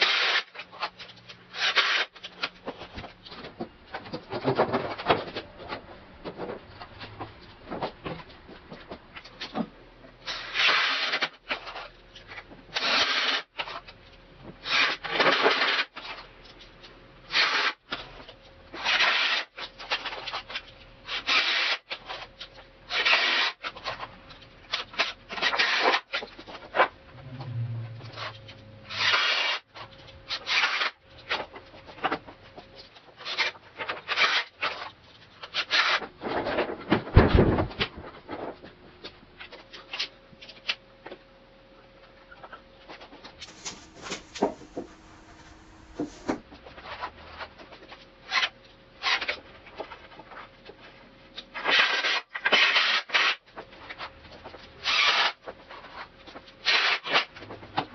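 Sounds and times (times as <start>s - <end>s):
wood rubbing and scraping: 43.4s - 46.4s.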